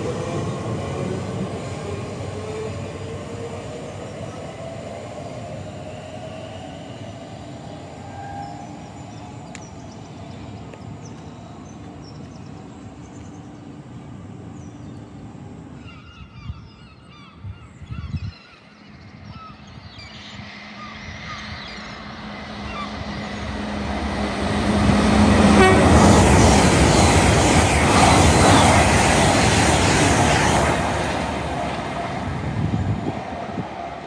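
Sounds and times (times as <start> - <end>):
train rumble: 0.0 - 16.7, 17.4 - 34.0
birds chirping: 14.4 - 32.3.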